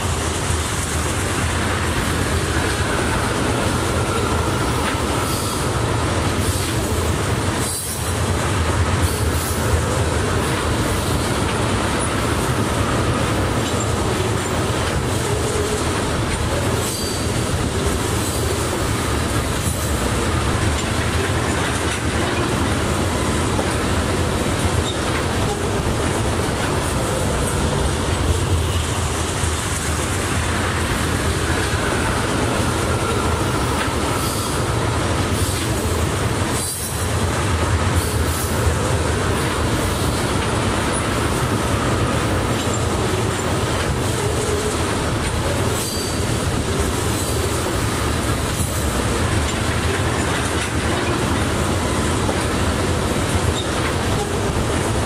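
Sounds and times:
train wheels rumbling on rail: 0:00.0 - 0:55.0
faint high wheel squeal: 0:04.0 - 0:05.8, 0:16.8 - 0:17.5, 0:45.8 - 0:46.3.

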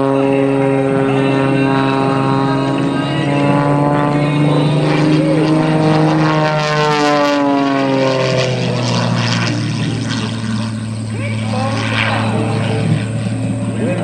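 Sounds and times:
propeller plane engine droning: 0:00.0 - 0:14.0.

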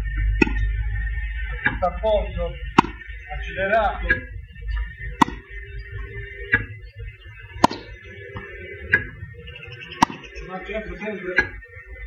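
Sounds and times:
racket hitting tennis ball: 0:00.4 - 0:00.7, 0:02.8 - 0:03.0, 0:05.2 - 0:05.5, 0:07.6 - 0:09.1, 0:10.0 - 0:10.3.

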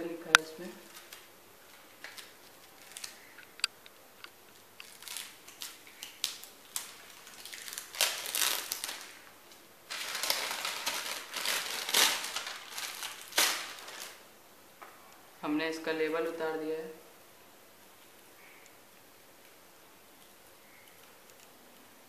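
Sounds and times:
plastic packaging crinkling: 0:00.3 - 0:14.3
small clicks and rustles: 0:17.8 - 0:22.0.

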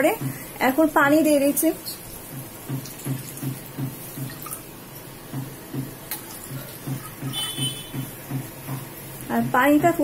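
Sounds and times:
water splashing into a pan: 0:02.1 - 0:08.9.

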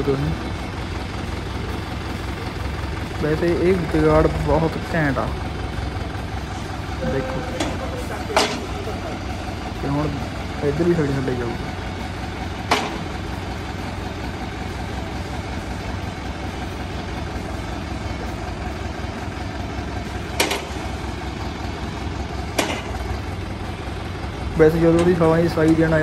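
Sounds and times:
tractor diesel engine idling: 0:00.0 - 0:26.0
sharp metal knocks: 0:08.4 - 0:08.6, 0:12.7 - 0:13.1, 0:20.4 - 0:20.8, 0:22.5 - 0:23.0.

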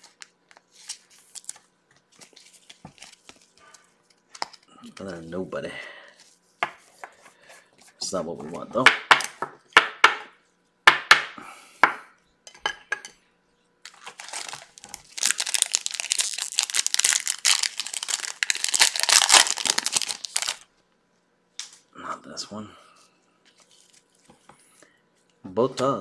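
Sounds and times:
wrapper crinkling and tearing: 0:00.0 - 0:01.6, 0:13.8 - 0:20.7.

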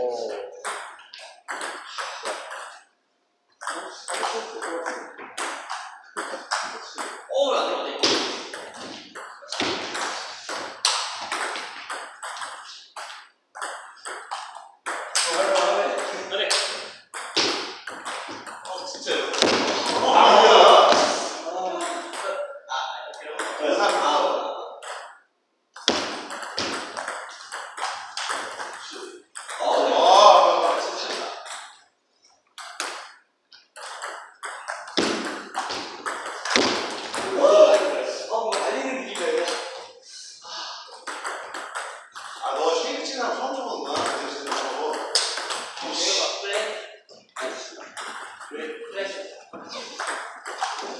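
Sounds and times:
table tennis balls tapping: 0:00.6 - 0:07.3, 0:08.0 - 0:20.1, 0:24.8 - 0:29.9, 0:30.6 - 0:39.9, 0:40.9 - 0:42.5, 0:43.8 - 0:45.9, 0:46.5 - 0:48.5, 0:49.5 - 0:50.9.

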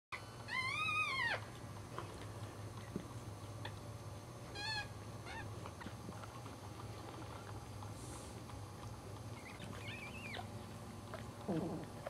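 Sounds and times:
puppies crying: 0:00.2 - 0:01.6, 0:04.5 - 0:05.6, 0:09.3 - 0:10.6.

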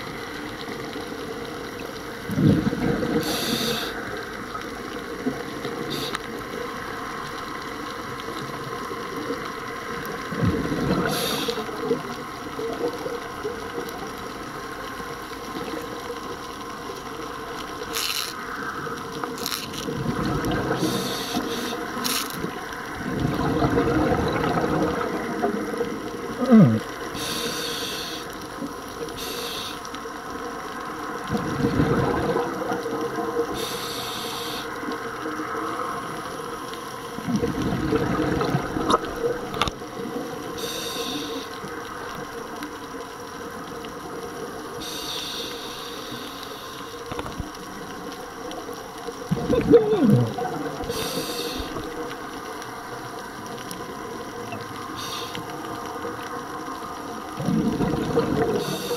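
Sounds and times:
exhaled bubbles gurgling: 0:00.0 - 0:58.9
underwater background noise: 0:00.0 - 0:58.9
diver inhaling through regulator: 0:03.2 - 0:04.0, 0:05.9 - 0:06.2, 0:11.0 - 0:11.7, 0:20.7 - 0:22.3, 0:26.5 - 0:28.3, 0:29.2 - 0:29.8, 0:33.6 - 0:34.8, 0:40.6 - 0:41.5, 0:44.8 - 0:47.0, 0:49.8 - 0:51.9, 0:55.0 - 0:55.5, 0:58.6 - 0:58.9.

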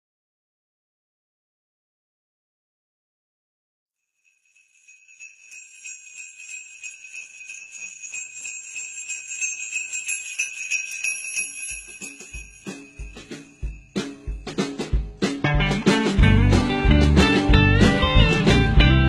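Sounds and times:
jingle bells shaking: 0:04.2 - 0:15.2
deep beat thumps: 0:11.8 - 0:19.0.

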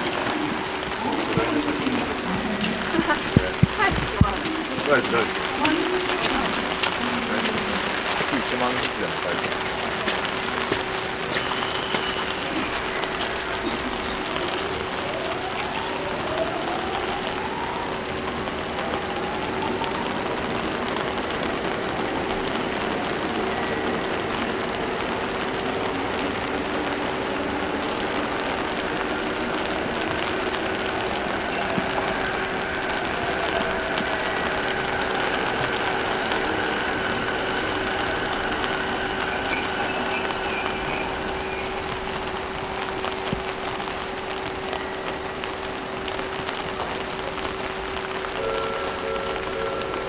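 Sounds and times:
steady rain falling: 0:00.0 - 0:50.0
electric train motor whine: 0:28.9 - 0:42.8.

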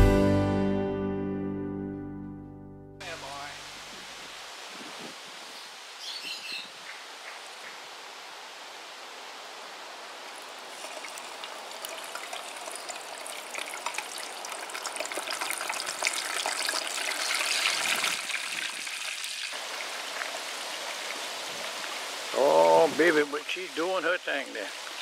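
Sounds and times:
hot oil sizzling and popping: 0:10.4 - 0:25.0.

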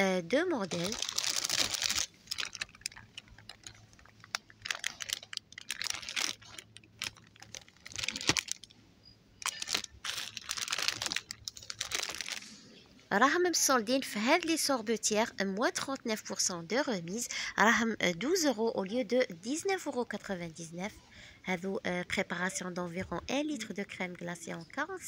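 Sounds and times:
plastic packaging crinkling: 0:00.3 - 0:08.8, 0:09.4 - 0:12.6.

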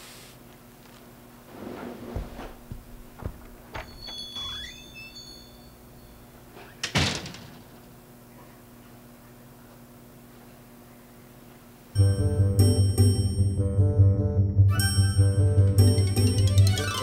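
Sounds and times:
light knocks and thumps: 0:02.1 - 0:04.1
high rising squeak: 0:03.9 - 0:06.2.

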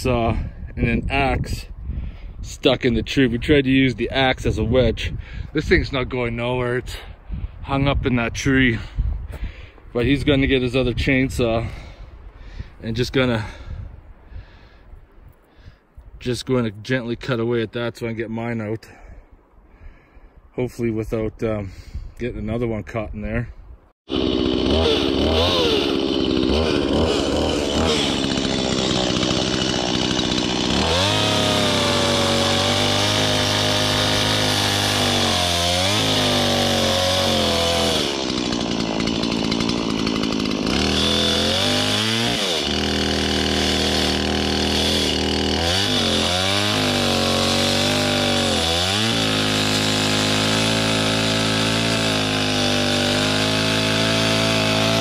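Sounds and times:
chainsaw cutting wood: 0:24.1 - 0:55.0.

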